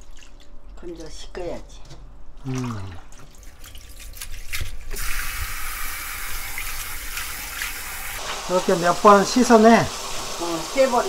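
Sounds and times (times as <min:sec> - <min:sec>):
water dripping and splashing: 0:00.0 - 0:11.0
kitchen tap running into sink: 0:04.9 - 0:11.0.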